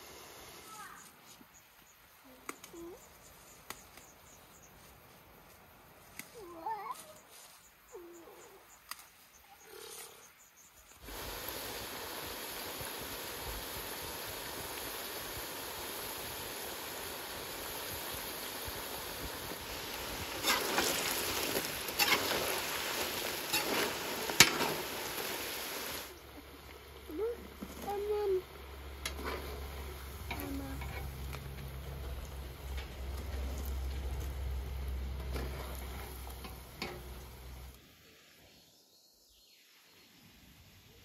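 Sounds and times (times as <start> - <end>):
food deep-frying in oil: 10.9 - 37.8.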